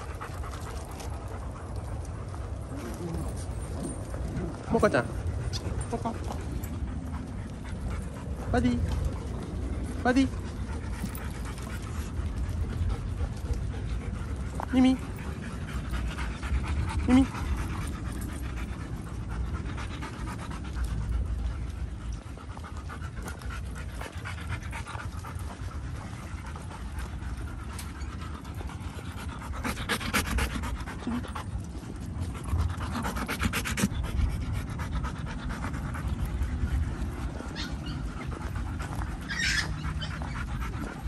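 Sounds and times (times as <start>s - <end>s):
dog panting: 0.0s - 41.0s.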